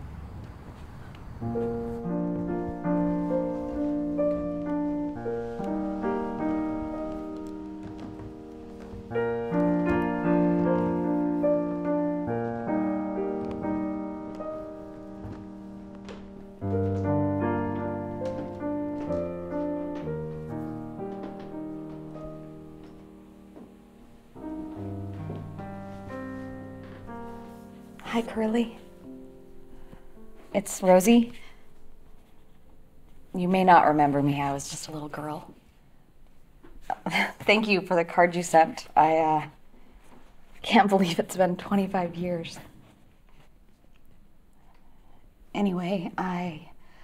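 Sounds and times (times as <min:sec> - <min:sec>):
slow piano chords: 0:00.0 - 0:36.9.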